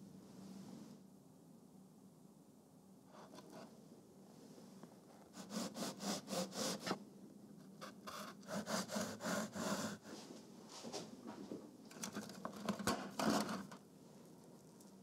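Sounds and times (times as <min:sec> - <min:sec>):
knife sawing through cake: 0:05.3 - 0:07.0, 0:08.1 - 0:10.2.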